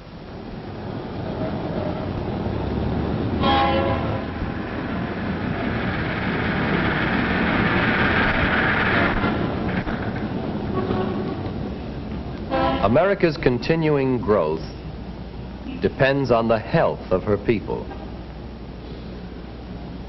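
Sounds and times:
heavy vehicle rumbling: 0.0s - 20.0s
horn blast: 3.4s - 4.5s, 10.7s - 11.6s, 12.5s - 13.2s.

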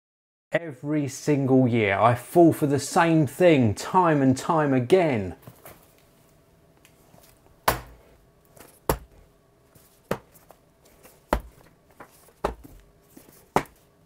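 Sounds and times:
cardboard boxes knocking on counter: 11.3s - 12.8s, 13.5s - 13.8s.

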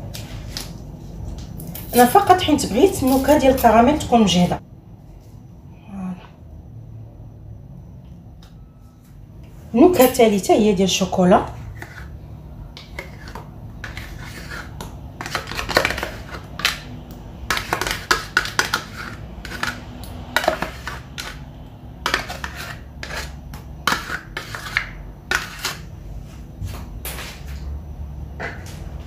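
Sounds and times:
spoon scraping and tapping pots: 12.7s - 16.8s, 17.5s - 25.8s.

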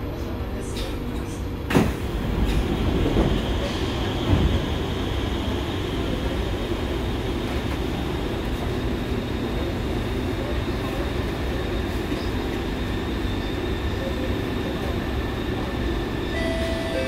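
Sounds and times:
stopped train humming: 0.0s - 17.0s
train doors sliding open: 0.7s - 4.8s, 16.3s - 17.0s.

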